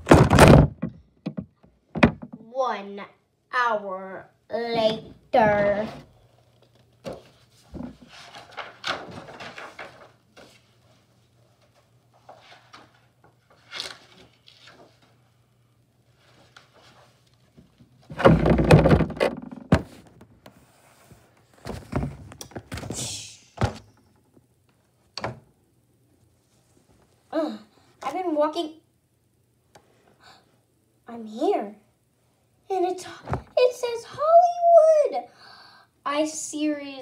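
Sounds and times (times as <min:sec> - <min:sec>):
handling thunks and knocks: 0:00.0 - 0:02.4, 0:18.1 - 0:20.2
faint steady hum: 0:00.0 - 0:37.0
loud bump: 0:18.1 - 0:20.0.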